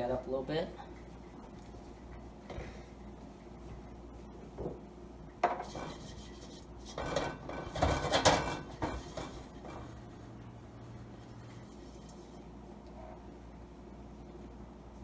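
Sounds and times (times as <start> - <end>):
spatula scraping a wok: 5.6 - 10.4.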